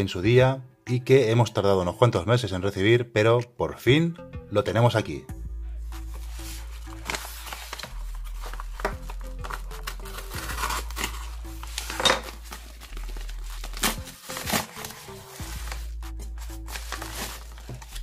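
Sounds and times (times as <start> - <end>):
background music: 0.0 - 18.0
packaging crinkling and tearing: 6.4 - 18.0.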